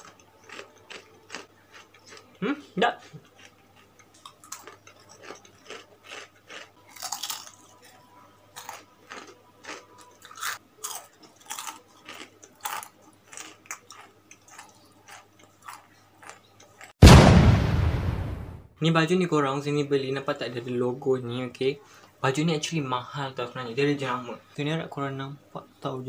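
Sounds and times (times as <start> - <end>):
crispy cracker crunching: 0.0 - 2.3, 3.0 - 16.9.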